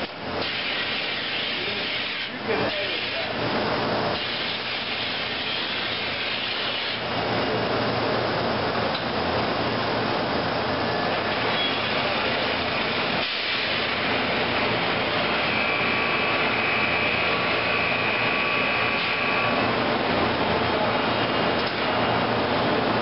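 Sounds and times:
industrial machine noise: 0.0s - 23.0s
faint high whine: 9.5s - 21.6s.

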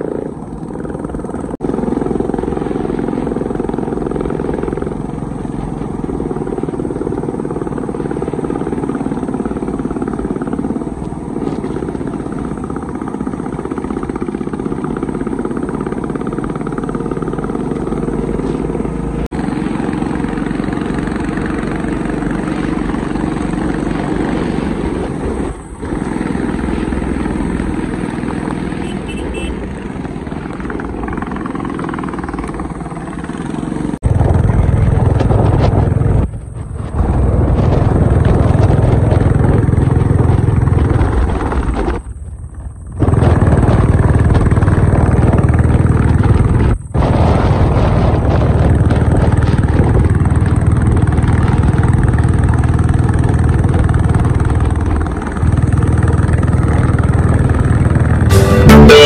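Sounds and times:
motorcycle engine running: 0.0s - 59.0s
wind rush on microphone: 19.3s - 31.3s, 34.0s - 58.2s.

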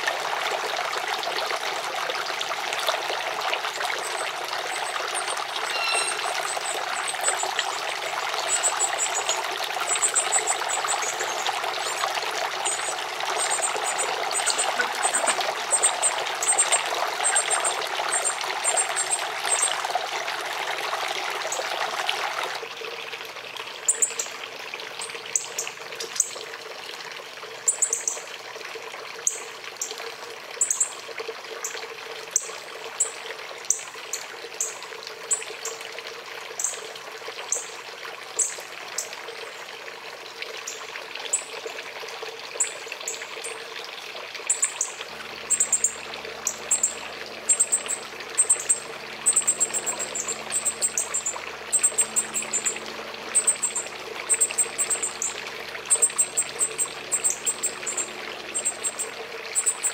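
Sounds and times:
water trickling: 0.0s - 59.9s
bird chip calls: 4.1s - 12.0s, 12.6s - 19.7s, 45.5s - 59.9s.

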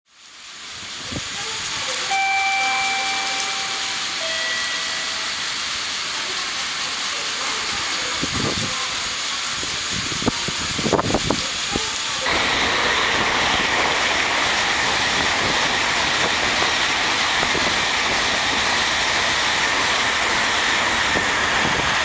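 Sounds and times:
train rushing past: 2.0s - 7.0s, 11.6s - 22.0s
train horn: 2.1s - 5.6s.

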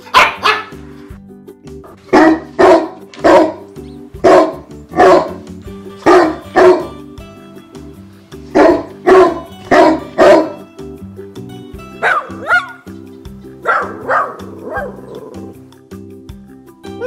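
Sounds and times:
dog barking: 0.0s - 0.8s, 2.1s - 5.4s, 6.0s - 7.0s, 8.5s - 10.6s, 12.0s - 12.8s, 13.6s - 15.0s
dog yelping bark: 0.0s - 0.8s, 2.1s - 3.6s, 4.2s - 5.4s, 6.0s - 6.9s, 8.6s - 10.6s, 12.0s - 12.8s, 13.6s - 15.2s
background music: 0.0s - 17.0s.

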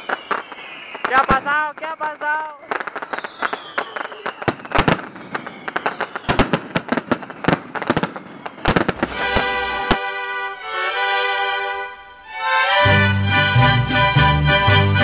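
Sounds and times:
fireworks bangs and crackles: 0.0s - 10.2s
music playing: 9.0s - 15.0s.

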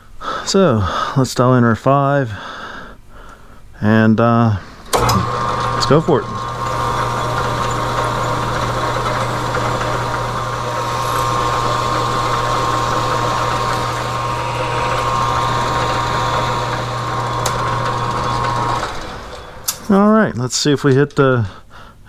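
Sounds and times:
metal lathe running: 4.9s - 20.1s.

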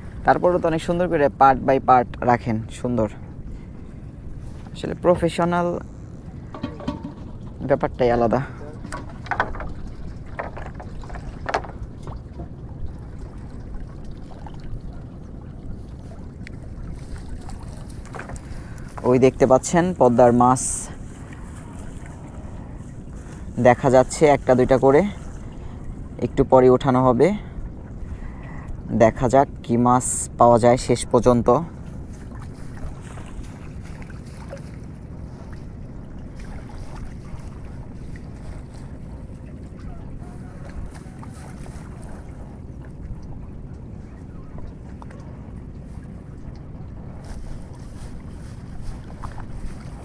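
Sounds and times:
boat engine low rumble: 0.0s - 50.0s
wind buffeting microphone: 0.0s - 50.0s
light knocks: 6.5s - 7.6s.

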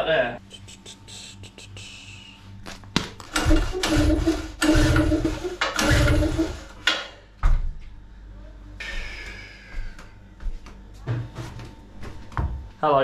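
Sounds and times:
generator pull cord whirring: 3.2s - 7.1s.

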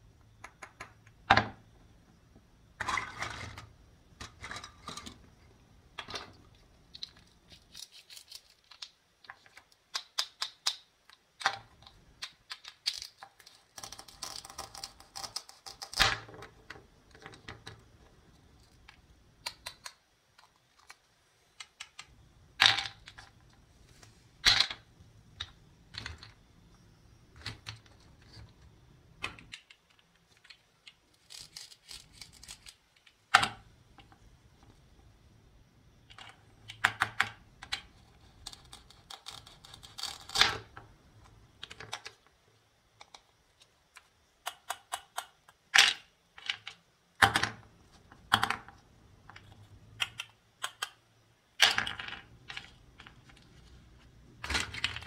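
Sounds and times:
wooden pieces knocking: 51.6s - 53.4s.

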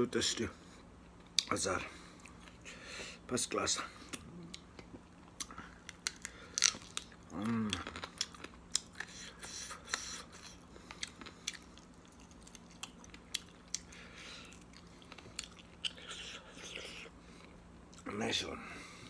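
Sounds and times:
person chewing food: 1.1s - 2.7s, 4.0s - 18.0s
person humming: 7.3s - 8.0s.

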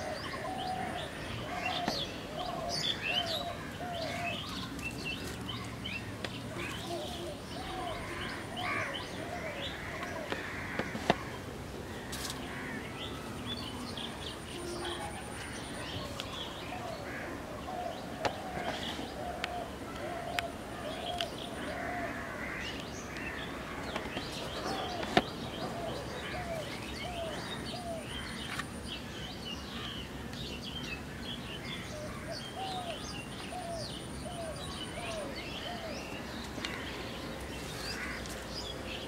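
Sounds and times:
birds chirping and twittering: 0.0s - 39.0s.

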